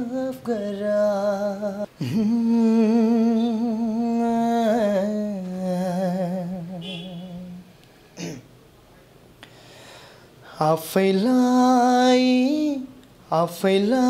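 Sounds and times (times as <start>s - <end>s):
man singing unaccompanied: 0.0s - 7.7s, 10.5s - 14.0s
quick breath: 9.4s - 10.5s.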